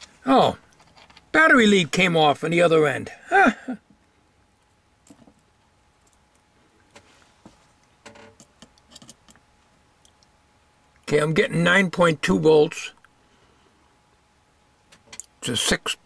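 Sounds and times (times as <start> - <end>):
light clicks and taps of test leads: 7.8 - 11.1.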